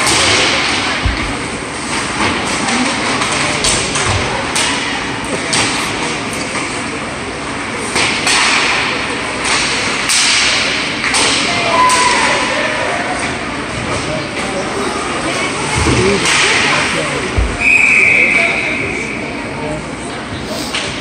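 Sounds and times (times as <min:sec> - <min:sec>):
spectators chattering: 0:00.0 - 0:21.0
sticks and puck clacking: 0:01.8 - 0:06.8, 0:07.9 - 0:12.1, 0:16.0 - 0:17.0.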